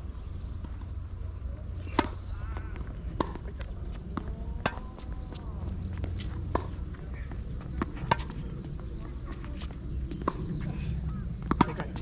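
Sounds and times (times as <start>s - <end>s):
tennis ball hitting racket: 1.8s - 2.6s, 3.2s - 8.4s, 11.5s - 12.0s
tennis ball bouncing on court: 1.8s - 12.0s.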